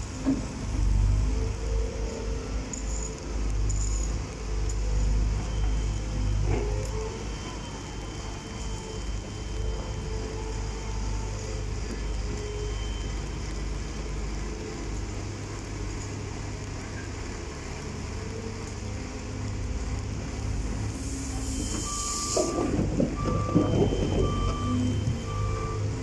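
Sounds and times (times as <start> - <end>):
reversing alarm beeping: 5.4 - 14.2, 21.0 - 26.0
diesel engine running: 13.9 - 26.0
burst of hiss: 20.9 - 22.6.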